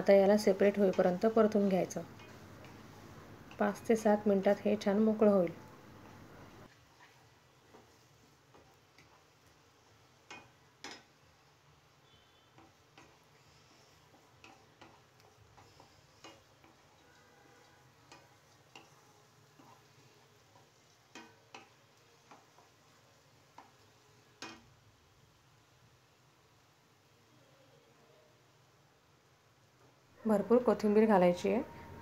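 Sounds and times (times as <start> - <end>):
wooden spatula scraping a pan: 6.0 - 24.6.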